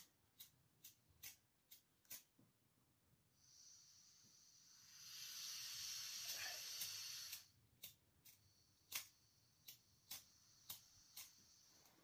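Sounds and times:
gas hissing: 3.4s - 7.5s, 8.5s - 12.0s.

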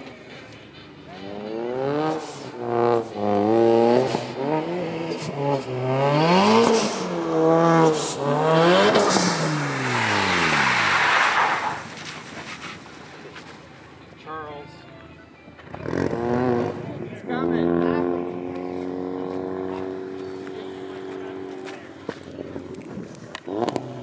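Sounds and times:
car engine revving hard: 1.4s - 11.9s, 15.7s - 21.6s, 23.5s - 24.0s.

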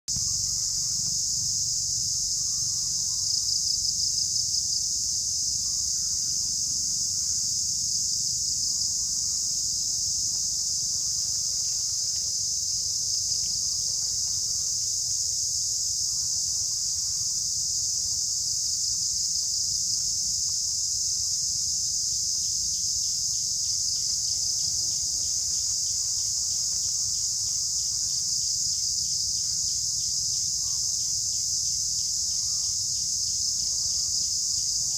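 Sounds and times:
high-pitched insect chorus: 0.1s - 34.9s.

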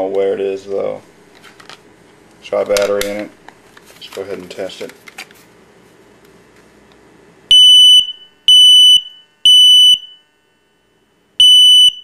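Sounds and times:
smoke alarm beeping: 7.5s - 10.4s, 11.4s - 12.0s.

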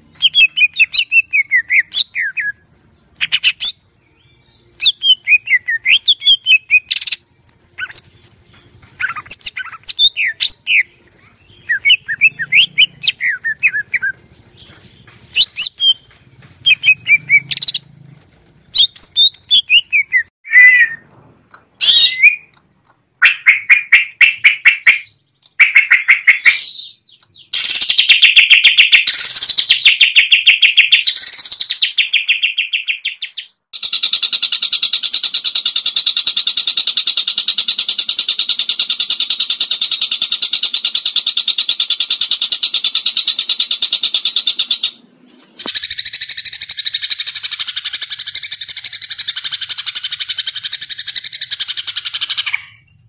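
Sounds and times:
bird whistling song: 0.1s - 2.6s, 3.2s - 7.2s, 7.8s - 17.8s, 18.7s - 21.0s, 21.8s - 22.6s, 23.2s - 45.0s, 45.6s - 53.0s
bird buzzy rattling trills: 7.8s - 20.3s, 33.8s - 45.0s.

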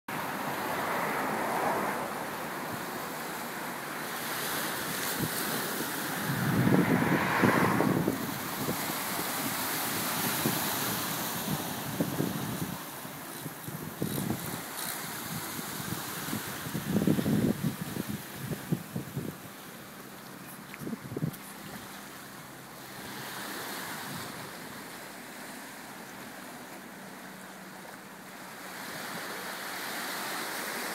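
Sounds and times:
sea washing against rocks: 0.2s - 30.9s
wind on microphone: 0.7s - 22.0s.

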